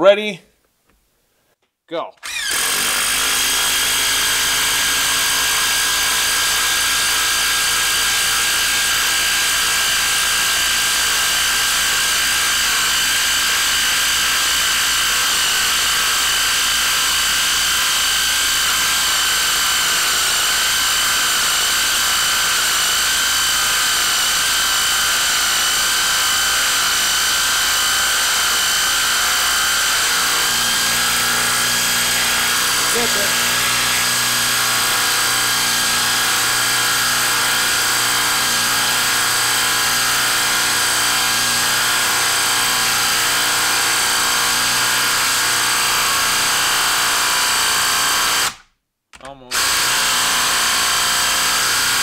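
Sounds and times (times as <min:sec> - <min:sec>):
impact wrench hammering: 0:16.5 - 0:44.4.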